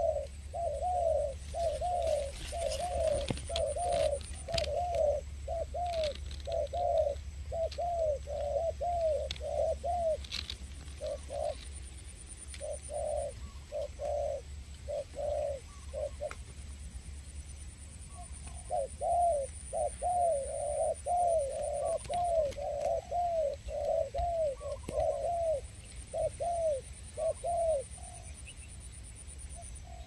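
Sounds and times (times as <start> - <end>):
dove cooing: 0.0 - 17.4, 18.0 - 30.0.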